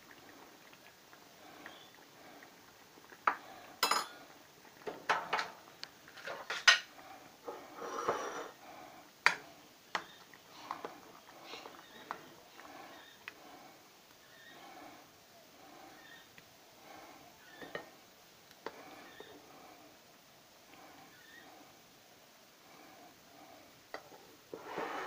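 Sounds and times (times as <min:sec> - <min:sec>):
spoon scraping a metal pot: 0:07.5 - 0:08.6, 0:24.5 - 0:25.0.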